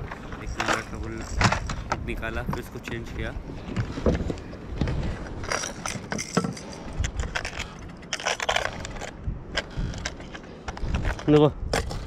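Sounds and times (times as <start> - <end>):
fishing tackle clinking: 5.4 - 9.2.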